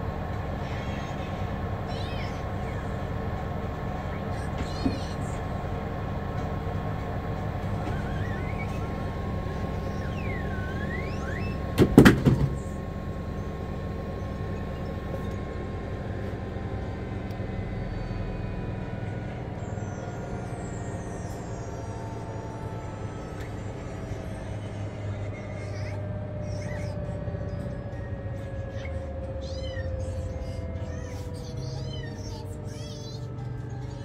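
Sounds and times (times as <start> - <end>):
washing machine humming: 0.0 - 33.8
washing machine knocking: 11.7 - 12.8.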